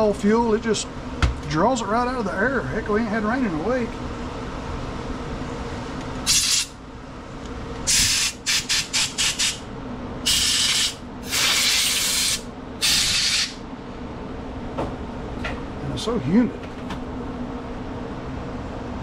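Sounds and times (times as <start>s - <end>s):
air blow gun hissing: 6.3s - 6.8s, 7.9s - 9.6s, 10.2s - 13.6s.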